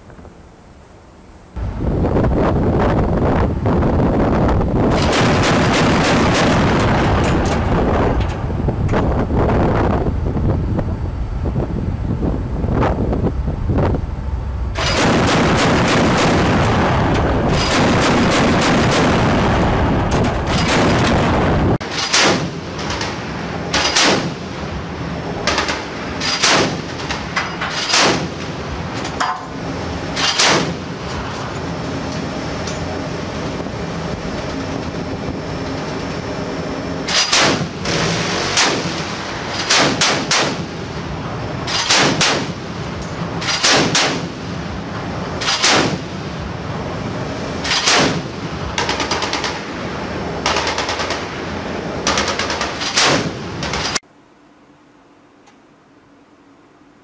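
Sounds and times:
wind: 0:00.0 - 0:57.0
gun firing single shots: 0:39.6 - 0:40.7, 0:41.7 - 0:42.6, 0:43.5 - 0:44.3, 0:45.5 - 0:46.0.

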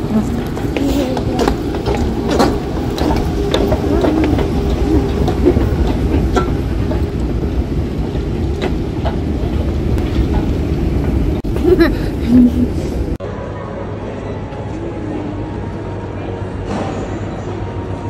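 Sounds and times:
moving walkway rumble: 0:00.0 - 0:13.2.

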